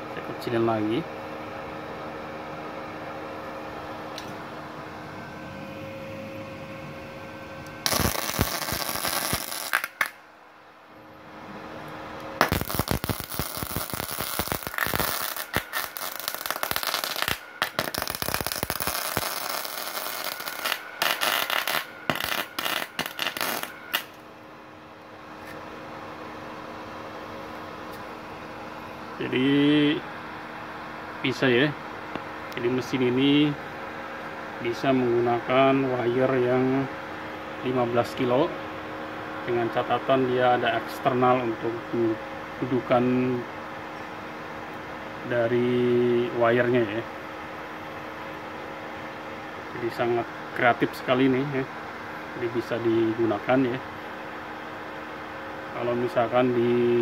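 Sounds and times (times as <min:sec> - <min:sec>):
welding arc crackling: 0:07.8 - 0:10.2, 0:12.4 - 0:24.2.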